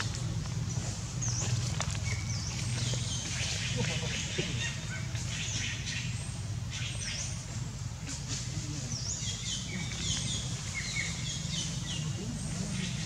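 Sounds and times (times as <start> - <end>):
small birds chirping: 0.0 - 13.0
steady low hum: 0.0 - 13.0.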